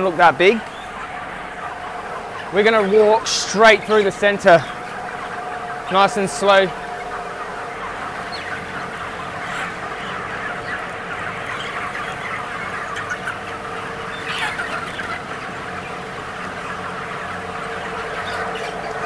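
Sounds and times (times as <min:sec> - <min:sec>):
chicks peeping: 0:00.0 - 0:19.0
steady hum: 0:00.0 - 0:19.0.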